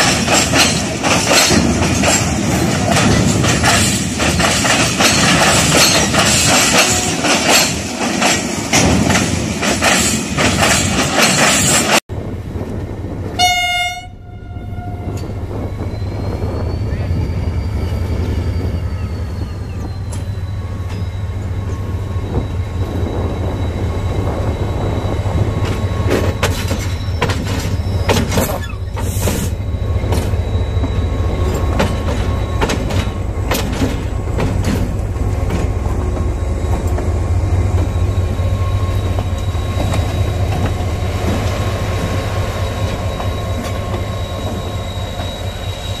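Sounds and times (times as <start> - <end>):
train wheel clacks: 0.0 - 12.0, 19.7 - 46.0
diesel locomotive engine drone: 0.0 - 46.0
high wheel squeal: 14.8 - 46.0.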